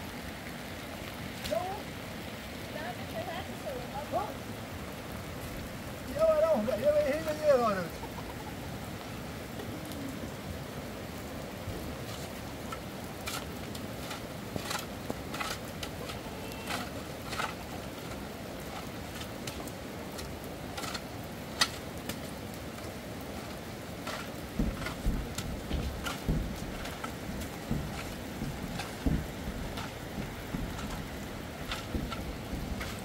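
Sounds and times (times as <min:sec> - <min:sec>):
raindrops striking a surface: 0:00.0 - 0:33.0
steady rain: 0:00.0 - 0:33.0
wind buffeting microphone: 0:23.8 - 0:33.0.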